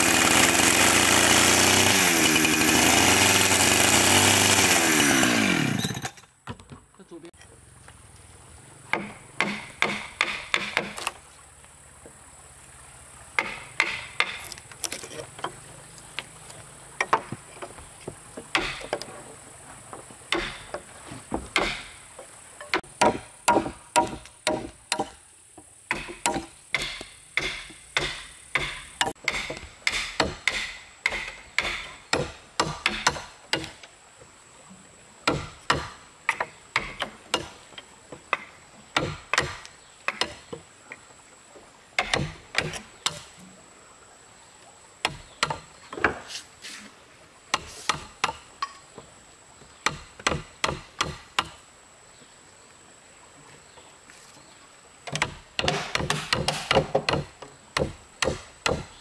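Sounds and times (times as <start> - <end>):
hand tool striking timber: 8.9 - 11.2, 13.4 - 15.6, 18.4 - 19.1, 20.3 - 22.0, 22.6 - 25.2, 25.9 - 33.8, 35.3 - 37.6, 38.3 - 40.6, 42.0 - 43.3, 45.0 - 46.4, 47.5 - 48.8, 49.8 - 51.6, 55.1 - 59.0.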